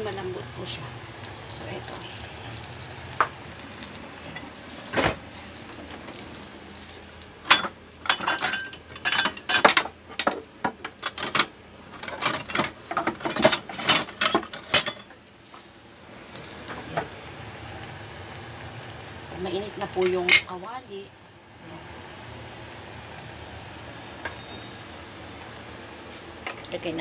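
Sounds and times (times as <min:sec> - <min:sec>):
cookware clattering: 0:07.4 - 0:15.1.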